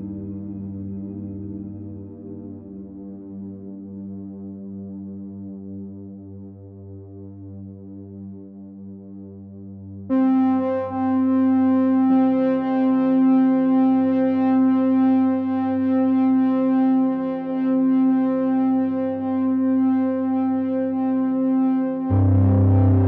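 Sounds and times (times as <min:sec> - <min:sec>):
synthesizer chords: 0:18.7 - 0:23.0.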